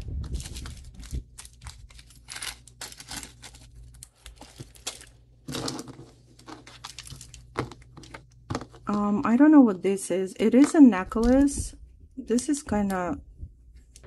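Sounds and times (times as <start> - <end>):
plastic crinkling: 0.0 - 9.0.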